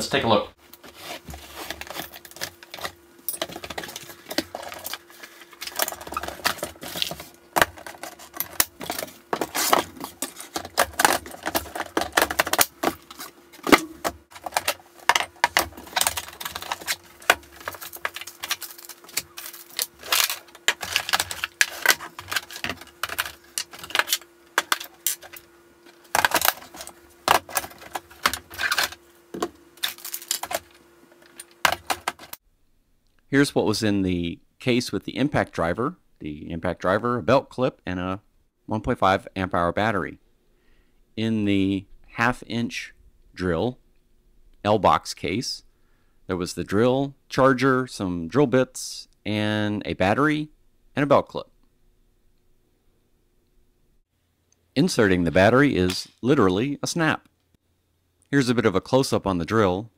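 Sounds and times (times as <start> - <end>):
cardboard packaging handled: 0.7 - 32.4
plastic bags rustling: 0.7 - 32.4
plastic cases unlatched and opened: 1.8 - 32.4.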